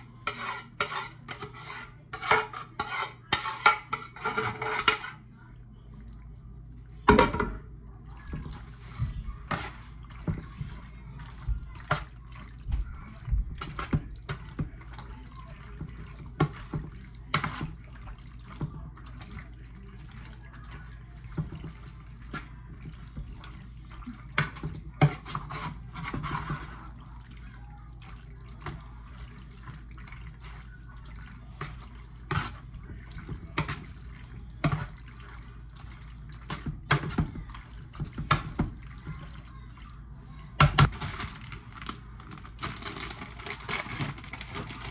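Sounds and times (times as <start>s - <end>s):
utensil scraping dish: 0.0s - 5.3s, 8.4s - 12.2s, 21.3s - 27.0s, 31.5s - 35.5s
wet squelching of stirred pasta: 0.0s - 44.9s.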